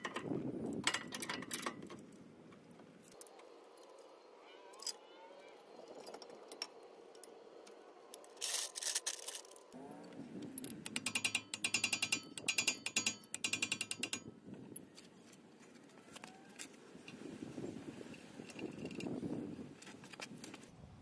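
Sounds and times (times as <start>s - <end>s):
metallic clatter: 10.5s - 14.3s
socket ratchet clicking: 10.6s - 14.3s.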